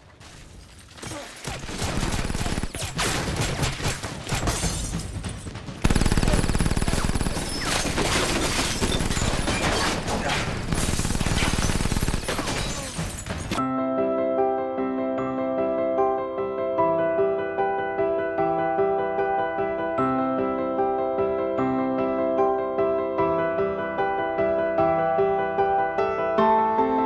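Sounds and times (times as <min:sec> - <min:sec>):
soft piano music: 0:13.6 - 0:27.0.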